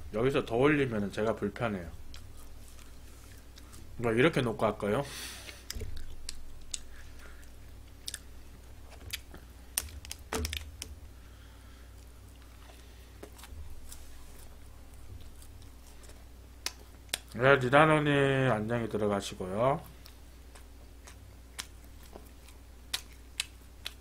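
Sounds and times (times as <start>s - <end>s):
soft chewing: 1.9s - 4.0s, 5.4s - 10.2s, 11.4s - 17.4s, 19.8s - 24.0s.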